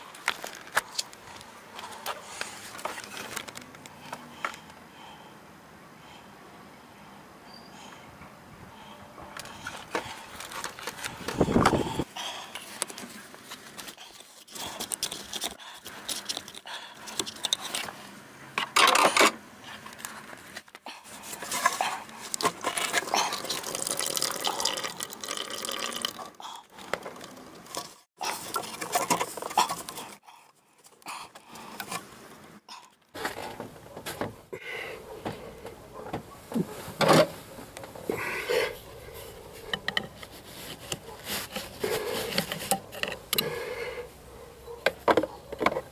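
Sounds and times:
hose fittings clicking and scraping: 9.3 - 18.0, 18.6 - 30.2, 39.2 - 43.6.

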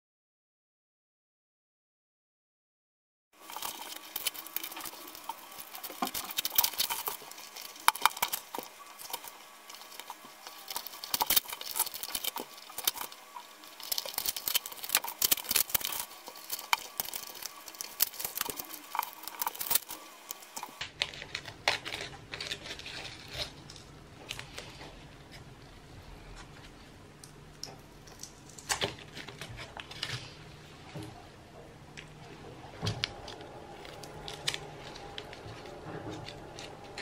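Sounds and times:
masking tape peeling and tearing: 3.4 - 23.7.

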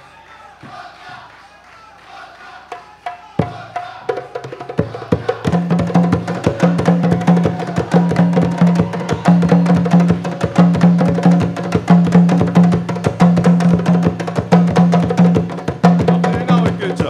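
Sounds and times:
hand drums playing fast rhythm: 3.4 - 17.0.

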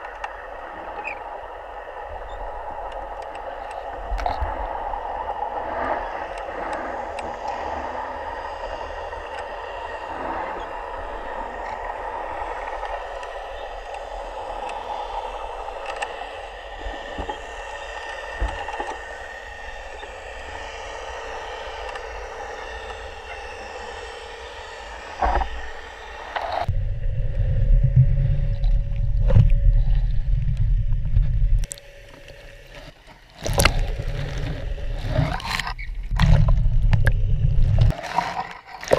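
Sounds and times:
faint hum: 0.0 - 38.0
muffled underwater noise: 0.0 - 38.9
loud low rumble: 6.5 - 32.6, 33.5 - 37.9.

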